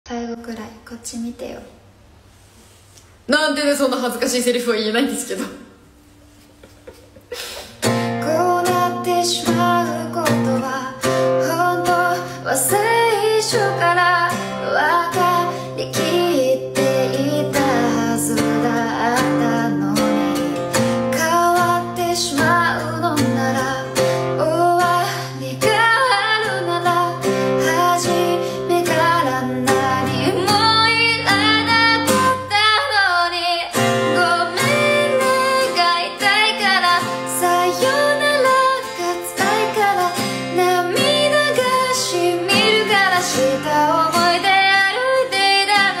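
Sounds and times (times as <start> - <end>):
strummed acoustic guitar: 7.7 - 46.0
woman singing: 7.8 - 46.0.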